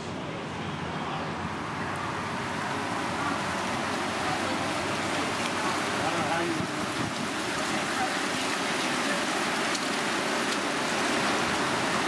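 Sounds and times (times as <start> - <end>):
faint voices: 0.0 - 9.7
road traffic: 0.0 - 12.0.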